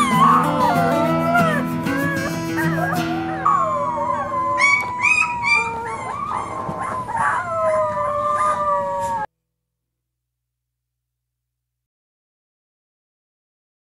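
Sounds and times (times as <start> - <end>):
puppies howling and yipping: 0.0 - 9.3.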